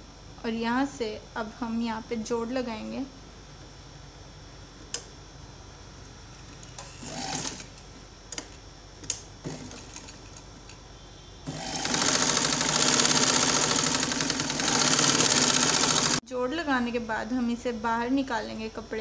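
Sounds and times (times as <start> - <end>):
sewing machine stitching: 7.0 - 7.7, 9.5 - 10.2, 11.5 - 16.2.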